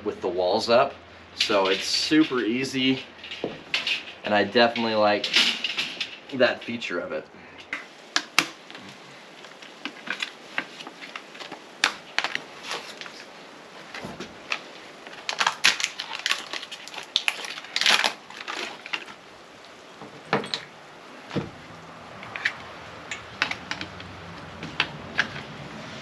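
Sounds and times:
plastic pack crinkling: 0:08.2 - 0:19.8
sharp plastic clicks and knocks: 0:22.2 - 0:25.5.

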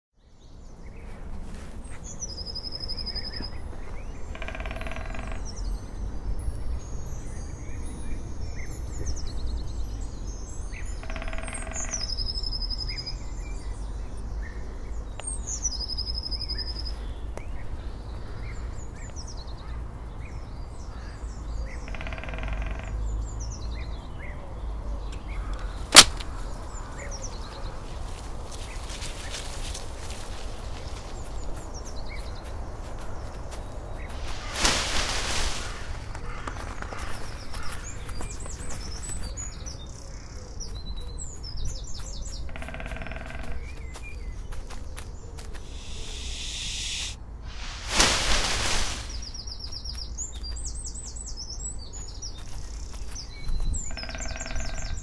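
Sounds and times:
sharp loud click: 0:25.9 - 0:26.4
birds chirping and trilling: 0:30.7 - 0:55.0
lower longer bird call: 0:45.7 - 0:47.2.

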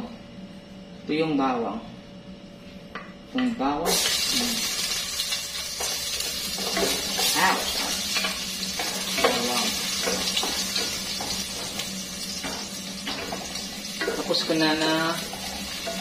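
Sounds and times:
garlic sizzling in hot oil: 0:03.9 - 0:16.0
spatula scraping frying pan: 0:15.3 - 0:16.0.

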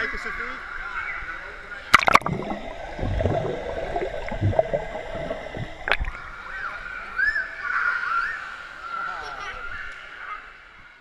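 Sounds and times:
sharp water splash: 0:01.9 - 0:06.6
underwater gurgling and bubbling: 0:01.9 - 0:07.0.

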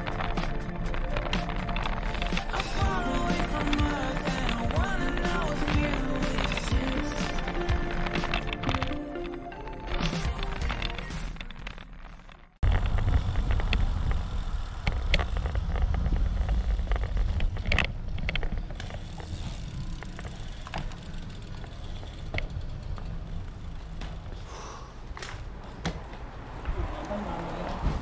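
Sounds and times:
intro music: 0:00.0 - 0:11.2
bike rolling noise: 0:00.0 - 0:28.0.

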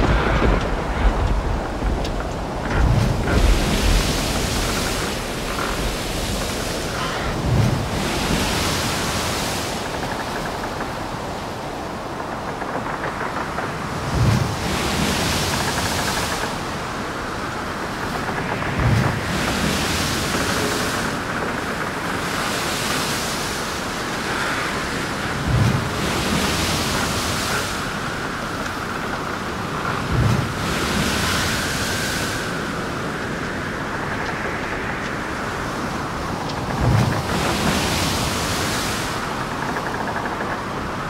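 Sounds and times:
waves crashing: 0:00.0 - 0:41.0
wind whistling: 0:00.0 - 0:41.0.

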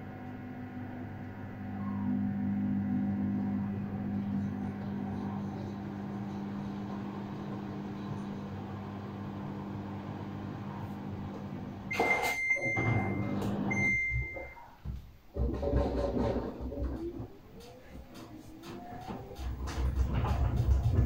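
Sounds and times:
washing machine humming: 0:00.0 - 0:21.0
high beep: 0:11.9 - 0:14.7.

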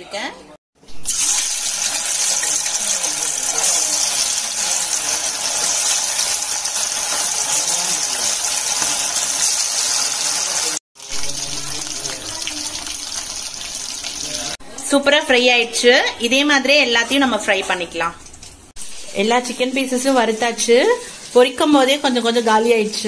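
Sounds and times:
chicken sizzling in hot oil: 0:00.9 - 0:14.6, 0:18.2 - 0:23.0.

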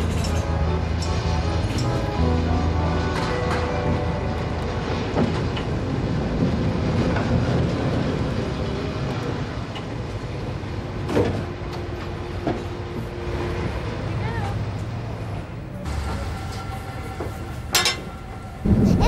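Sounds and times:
cable car rumble: 0:00.0 - 0:19.0.

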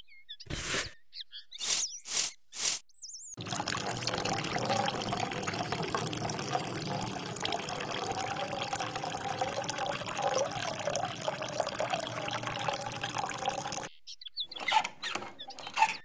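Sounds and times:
water running into a vessel: 0:03.4 - 0:13.9.

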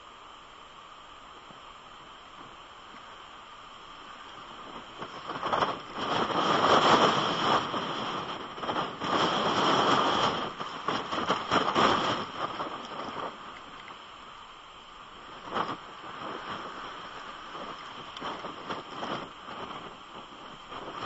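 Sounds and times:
pouring rain: 0:00.0 - 0:21.0
strong wind gusting: 0:04.0 - 0:13.9, 0:15.1 - 0:21.0.

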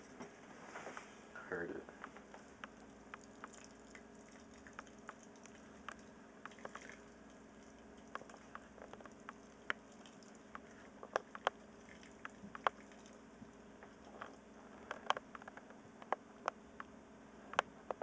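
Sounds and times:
low steady hum: 0:00.0 - 0:18.0
liquid trickling onto grain: 0:02.3 - 0:14.5.

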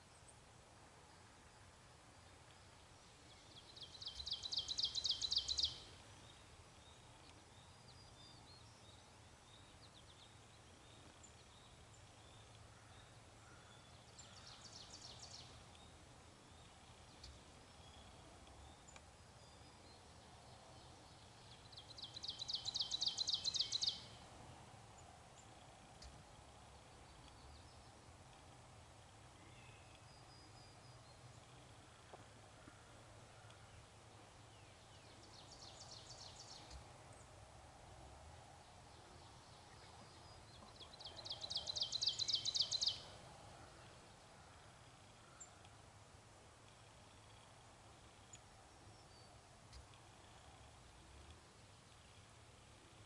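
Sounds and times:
outdoor background noise: 0:00.0 - 0:53.0
songbird trilling: 0:21.7 - 0:24.1, 0:40.8 - 0:43.1.

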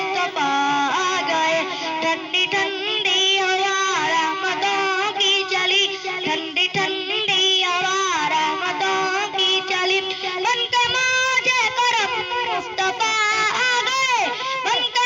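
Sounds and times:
boy singing devotional song: 0:00.0 - 0:15.0.

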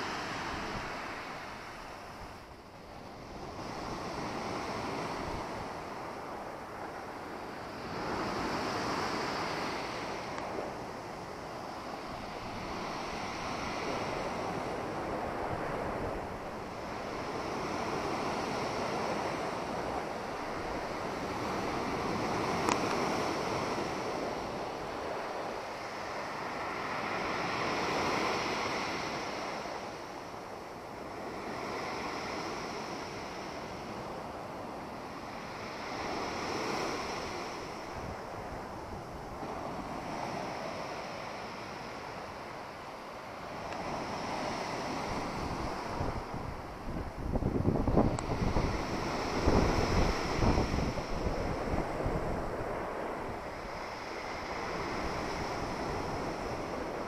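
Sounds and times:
surf breaking on shore: 0:00.0 - 0:57.0.

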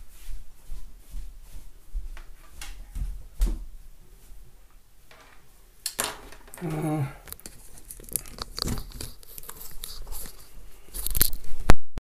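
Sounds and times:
crackling handling noises: 0:05.1 - 0:11.7.

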